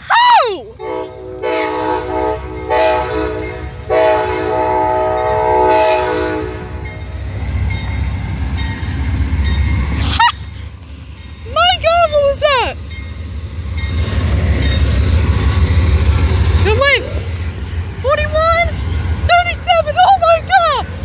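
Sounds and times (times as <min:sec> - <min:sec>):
locomotive horn blasts: 0:00.8 - 0:07.0.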